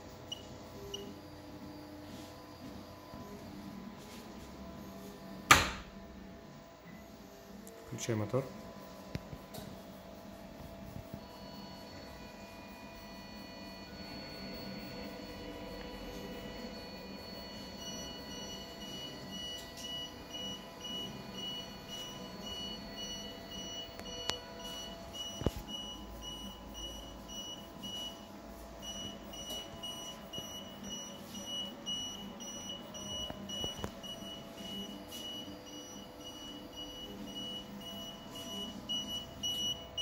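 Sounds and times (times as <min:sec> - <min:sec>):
electronic buzzer beeping rapidly: 0:10.0 - 0:40.0.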